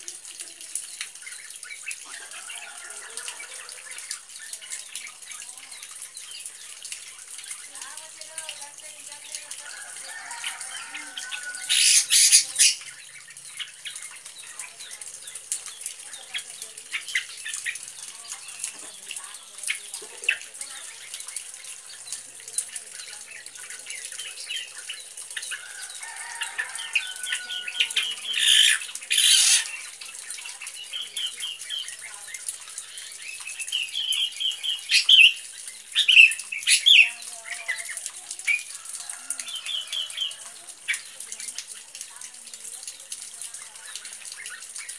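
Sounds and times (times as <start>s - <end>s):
bird chirping phrases: 4.1s - 44.9s.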